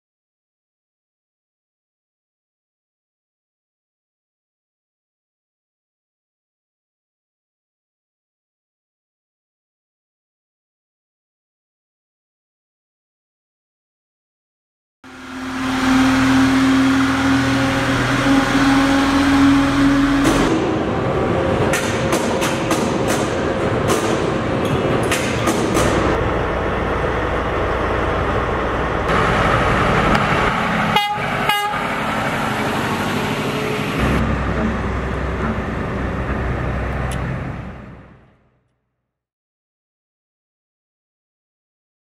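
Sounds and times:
truck horn: 15.1s - 20.8s, 30.9s - 32.0s
truck engine running: 15.1s - 38.6s.

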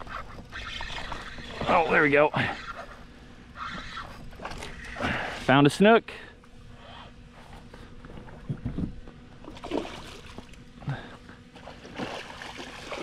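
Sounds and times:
water splashes: 9.4s - 10.6s, 11.5s - 13.0s.

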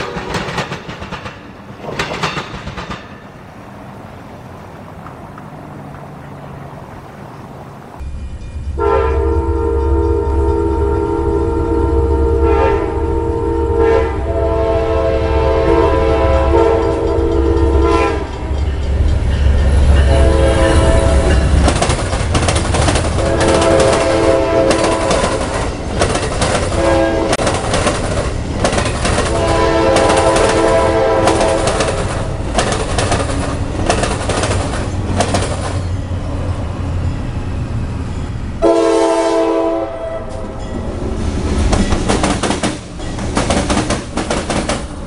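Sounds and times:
train horn blasts: 0.0s - 0.6s, 8.7s - 18.7s, 19.9s - 21.6s, 23.1s - 25.5s, 26.7s - 27.4s, 29.2s - 32.0s, 38.6s - 40.8s
train wheels clattering: 0.0s - 7.4s, 16.1s - 36.3s, 40.3s - 45.0s
locomotive engine rumble: 0.0s - 45.0s.

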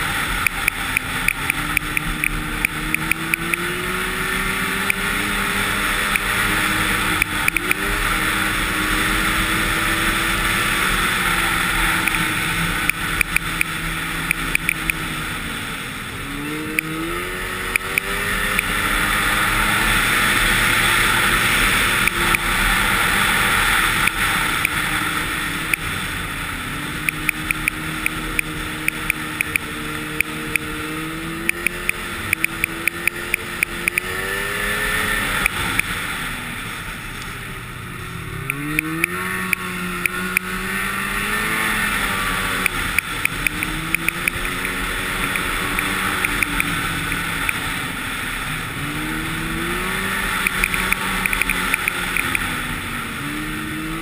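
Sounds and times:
snowmobile engine running: 0.0s - 54.0s
rapid clicks: 50.4s - 52.4s.

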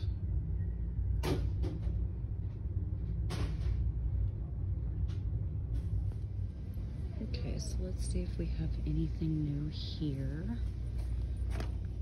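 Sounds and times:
low rumble of shop noise: 0.0s - 12.0s.

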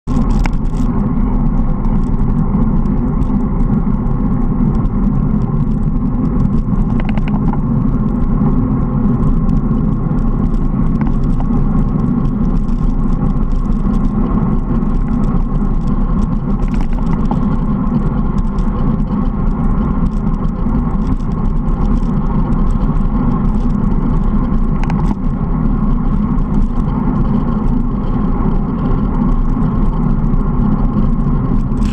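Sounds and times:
road and tyre noise: 0.0s - 31.9s
wind buffeting microphone: 0.1s - 31.9s
faint clicks: 6.5s - 7.6s.

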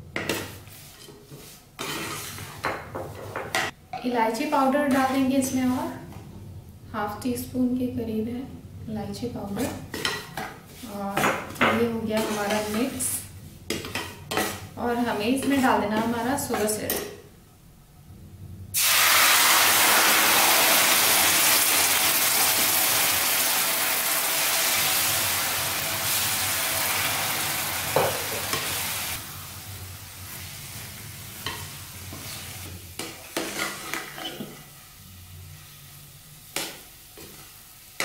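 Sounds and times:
spatula scraping a steel pan: 0.7s - 2.6s, 12.2s - 13.1s
syrup sizzling in a hot pan: 18.8s - 32.3s.

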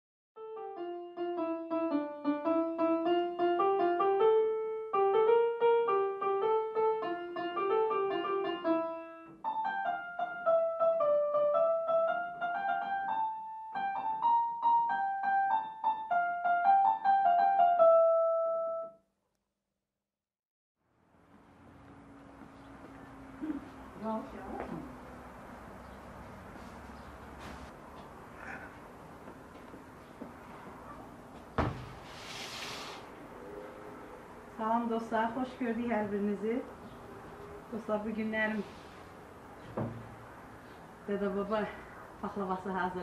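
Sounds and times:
electronic keyboard melody: 0.4s - 19.0s.

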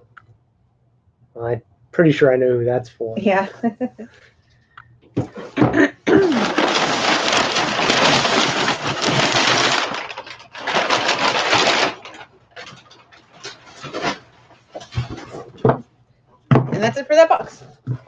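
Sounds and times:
packing paper crinkling: 6.1s - 15.4s.

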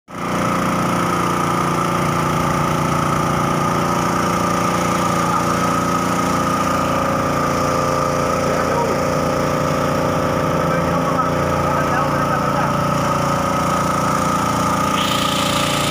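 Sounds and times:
petrol engine running steadily: 0.1s - 15.9s.

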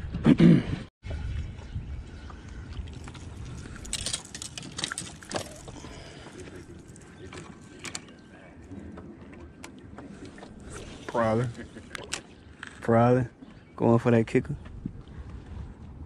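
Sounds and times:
wind rumble on microphone: 0.0s - 4.7s, 14.2s - 16.0s.

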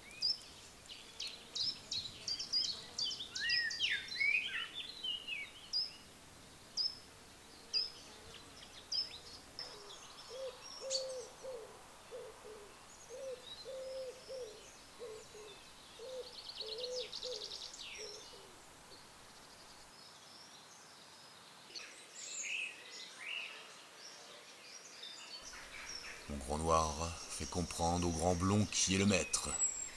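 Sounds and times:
songbirds chirping: 0.0s - 29.9s
low repeated bird notes: 25.4s - 29.9s.

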